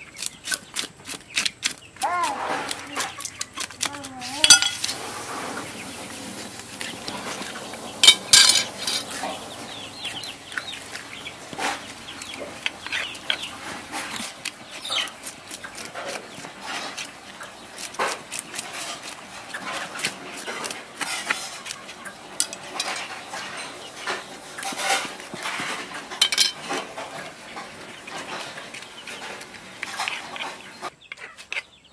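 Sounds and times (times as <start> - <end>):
chickens clucking: 0.0 - 31.9
metal spoon scraping fish scales: 0.2 - 9.8.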